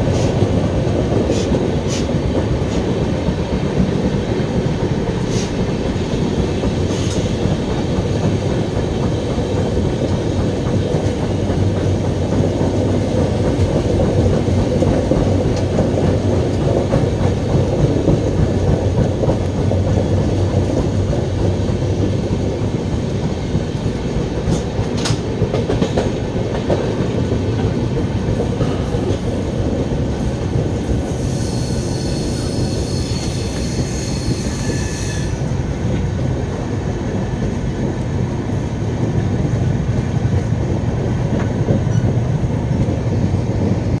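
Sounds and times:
train wheels rumbling on rails: 0.0 - 44.0
high-pitched wheel squeal: 31.1 - 35.4.

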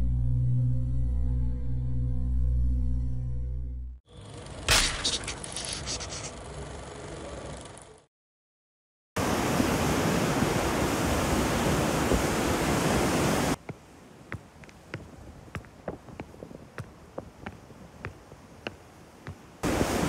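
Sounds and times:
breaking waves: 9.2 - 13.6, 19.6 - 20.0.

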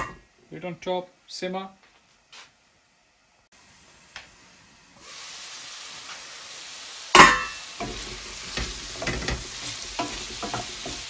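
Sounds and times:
vegetables sizzling in a pan: 3.5 - 11.0
utensil scraping a pan: 7.3 - 11.0.

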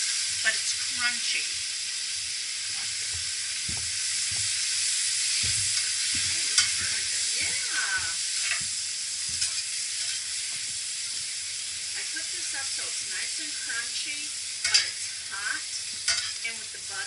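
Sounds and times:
asparagus sizzling in butter: 0.0 - 17.0
utensil scraping a pan: 5.2 - 7.6, 8.3 - 11.2.

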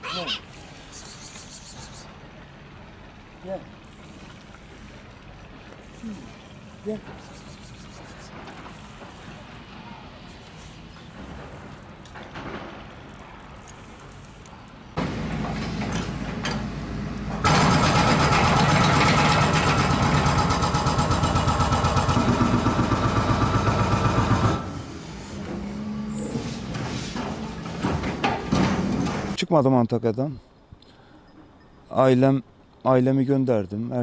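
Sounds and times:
vehicle engine running: 15.0 - 24.8.

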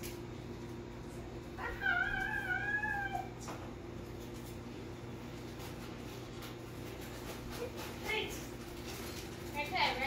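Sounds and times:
pet crying high: 1.6 - 3.5.

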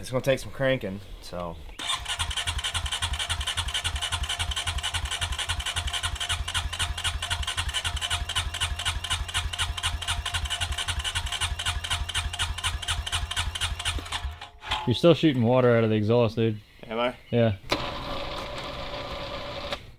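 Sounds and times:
electric starter cranking engine: 1.8 - 14.6, 17.7 - 19.9.

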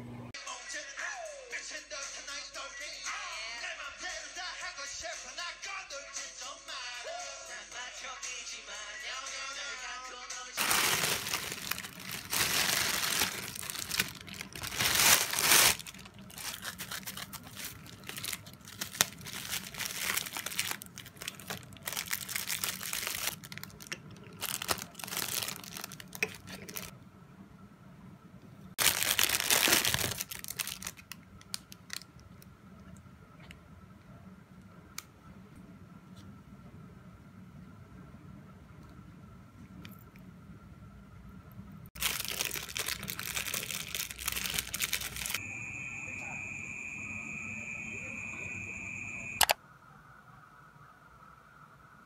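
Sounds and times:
plastic packaging crinkling: 10.6 - 26.9, 28.8 - 32.2, 42.0 - 45.4.

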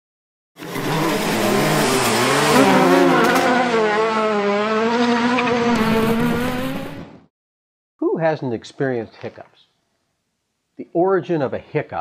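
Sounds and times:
racing car engine revving: 0.6 - 7.3.

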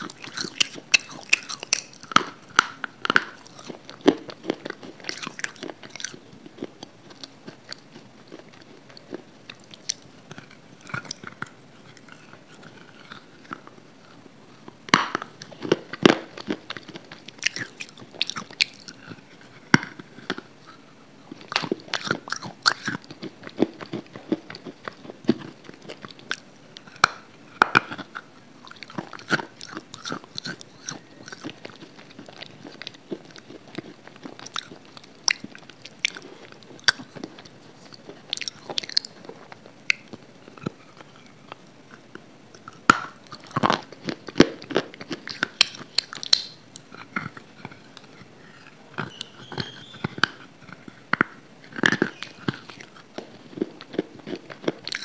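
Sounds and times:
crunching brittle snaps: 0.0 - 13.6, 14.7 - 20.4, 21.4 - 55.0
chewing: 0.0 - 55.0.

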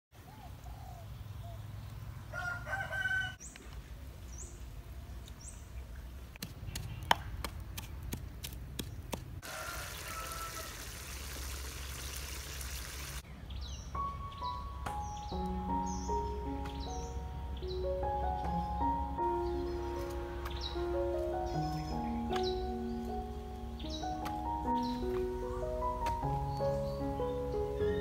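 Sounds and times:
rooster crowing: 2.3 - 3.4, 9.4 - 11.1
small birds chirping: 3.4 - 9.2, 11.7 - 28.0
background music: 13.8 - 28.0.

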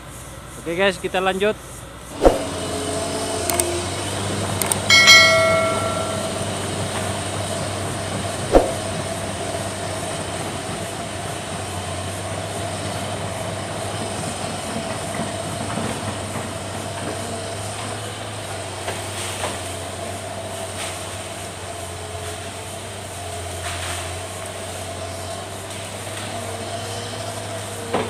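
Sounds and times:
excavator diesel engine droning: 1.6 - 28.0
sharp knocks: 2.2 - 2.6, 4.6 - 6.5, 8.5 - 8.9.

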